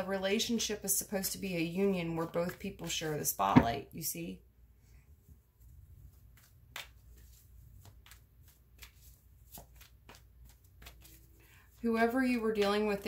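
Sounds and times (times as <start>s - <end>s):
cards being shuffled: 6.0s - 13.0s.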